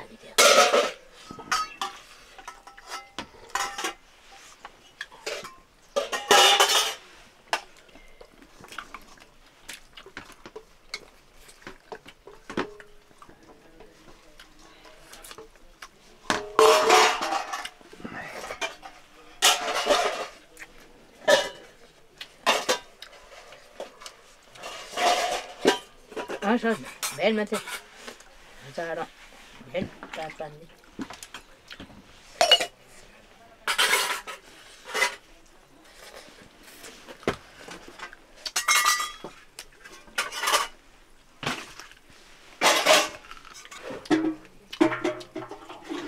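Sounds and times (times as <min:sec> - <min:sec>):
steel plates clinking and scraping: 0:00.4 - 0:04.4, 0:05.1 - 0:07.1, 0:16.3 - 0:17.8, 0:18.4 - 0:20.4, 0:24.6 - 0:28.0, 0:33.7 - 0:35.2, 0:38.5 - 0:40.8, 0:42.6 - 0:46.0.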